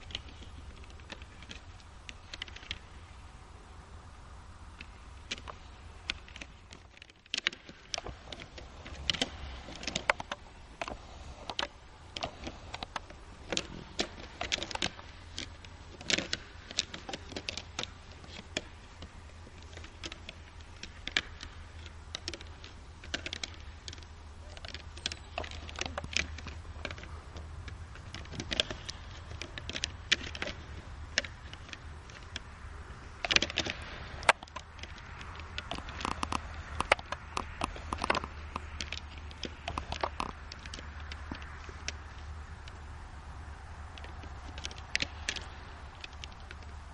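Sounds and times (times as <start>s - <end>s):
deer antlers clashing: 0.0s - 46.9s.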